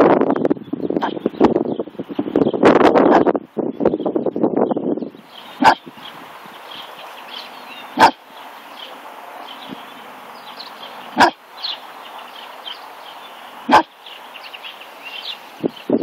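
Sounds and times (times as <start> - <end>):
puppy barking: 5.6 - 5.9, 7.8 - 8.3, 11.0 - 11.4, 13.6 - 14.0.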